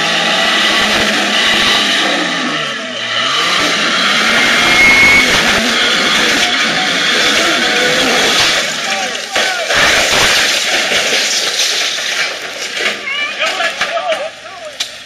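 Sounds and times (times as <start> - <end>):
car engine revving: 0.0 - 12.5
wheels spinning on rock: 3.4 - 14.3.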